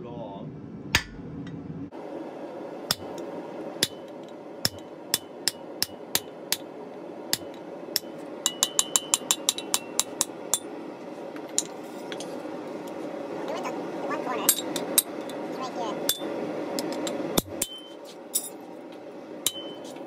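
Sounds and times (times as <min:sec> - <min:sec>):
hammer striking chisel on metal: 0:03.8 - 0:06.7, 0:07.3 - 0:10.7, 0:17.0 - 0:18.5, 0:19.4 - 0:19.9.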